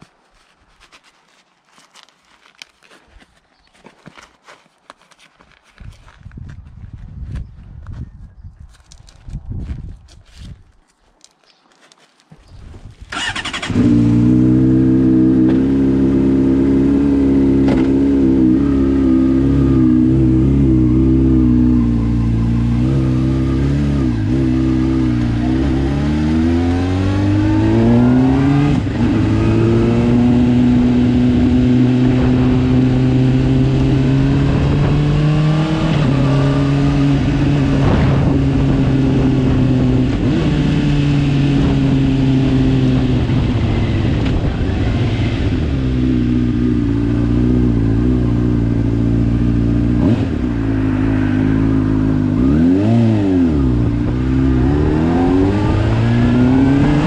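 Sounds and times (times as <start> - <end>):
motorcycle engine starting: 13.0 - 35.0
motorcycle accelerating: 13.1 - 57.0.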